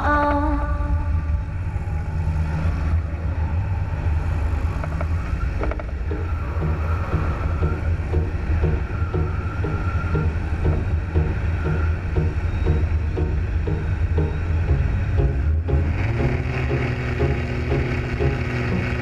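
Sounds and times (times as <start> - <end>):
plane piston engine running: 4.7 - 19.0.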